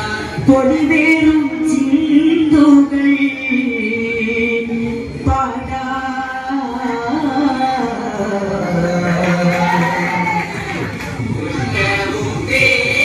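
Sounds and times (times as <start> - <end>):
boys singing unaccompanied: 11.3 - 13.0.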